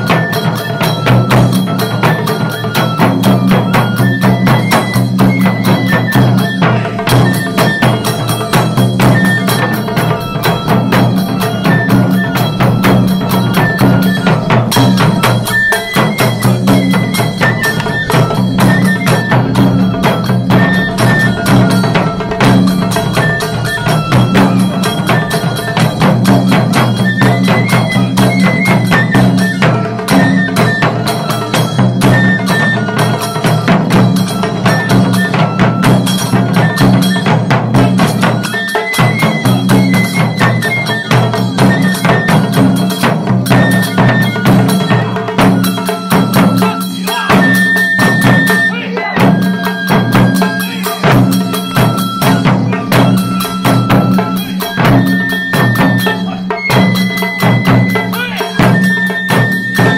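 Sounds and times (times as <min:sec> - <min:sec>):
brass hand cymbals: 0:00.0 - 0:59.9
taiko drums playing fast: 0:00.0 - 0:59.9
short high held notes: 0:04.7 - 0:30.6.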